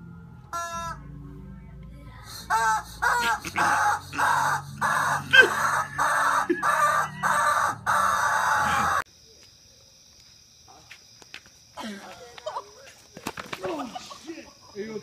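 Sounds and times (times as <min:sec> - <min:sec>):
rubber chicken squawking: 0:02.4 - 0:09.0.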